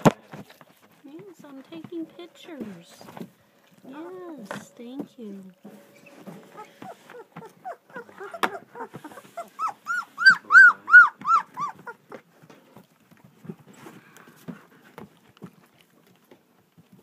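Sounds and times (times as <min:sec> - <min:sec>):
puppy whining: 0:05.9 - 0:16.3.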